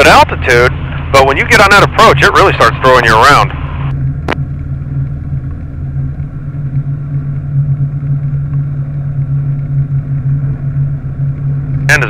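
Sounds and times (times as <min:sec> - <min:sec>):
aircraft engine and propeller drone: 0:00.0 - 0:12.0.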